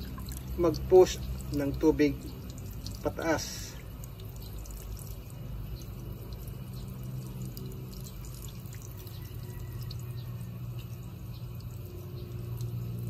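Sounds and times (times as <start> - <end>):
water splashing onto concrete: 0.0 - 10.1
steady low hum: 0.0 - 13.0.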